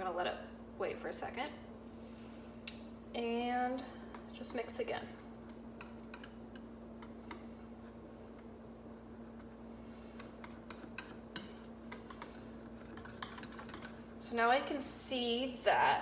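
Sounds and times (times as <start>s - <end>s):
steady low hum: 0.0s - 16.0s
whisk tapping metal bowl: 10.2s - 14.1s.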